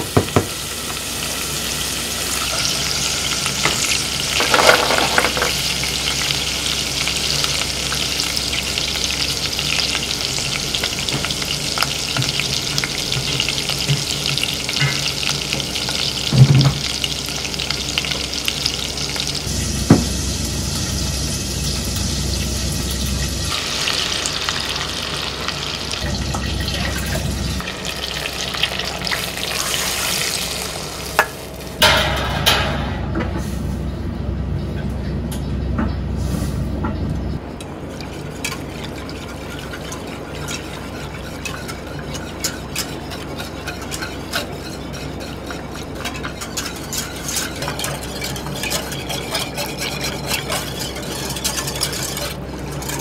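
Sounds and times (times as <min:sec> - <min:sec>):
garlic sizzling in oil: 0:00.0 - 0:31.8
whisk stirring: 0:37.8 - 0:53.0.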